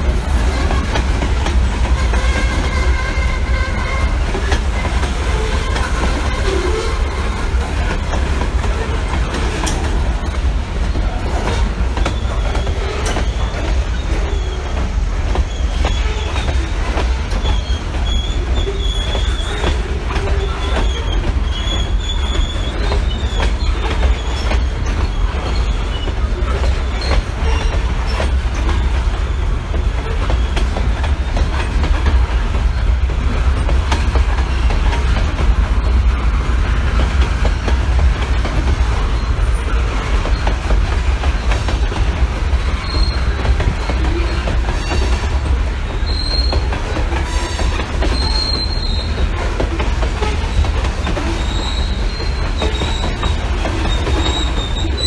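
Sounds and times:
freight train rumbling: 0.0s - 55.0s
wheels clicking over rail joints: 0.0s - 55.0s
thin high wheel squeal: 8.6s - 31.5s, 42.6s - 45.3s, 46.0s - 49.2s, 50.2s - 55.0s.

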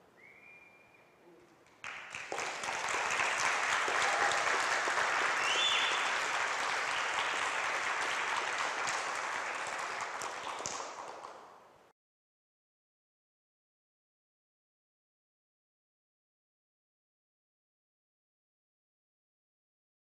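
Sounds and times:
audience applauding: 1.7s - 11.5s.

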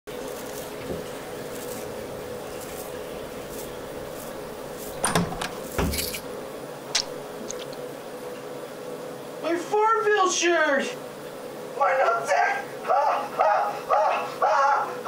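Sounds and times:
steady hum: 0.1s - 13.9s
door handle click and knock: 5.0s - 6.2s
door heavy thump: 5.0s - 6.2s.

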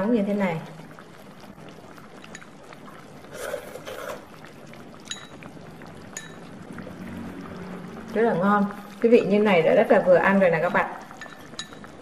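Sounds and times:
broth bubbling in a pot: 0.0s - 12.0s
light ringing clinks: 11.2s - 11.9s.

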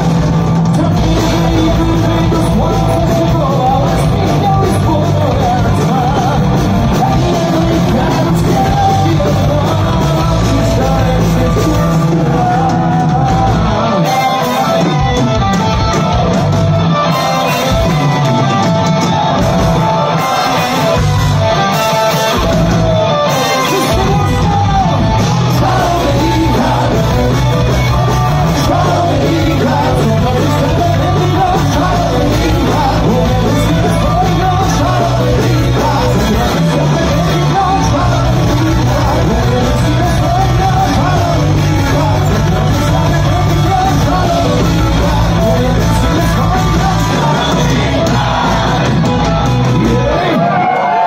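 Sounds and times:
bass: 0.0s - 51.0s
distorted electric guitars: 0.0s - 51.0s
drums: 0.0s - 51.0s
person singing long notes: 22.4s - 50.5s.

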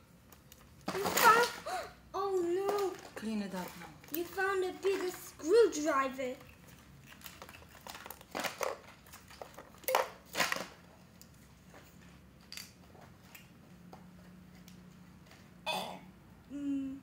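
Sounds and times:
plastic toys clicking and scraping: 0.3s - 11.4s.

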